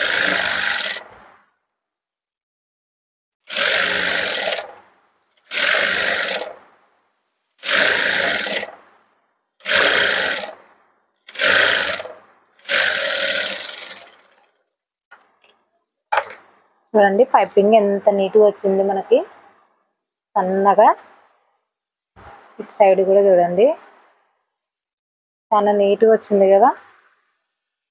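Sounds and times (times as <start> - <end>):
sewing machine running: 0.0 - 1.1, 3.5 - 4.8, 5.4 - 6.6, 7.6 - 8.8, 9.6 - 10.6, 11.3 - 14.6.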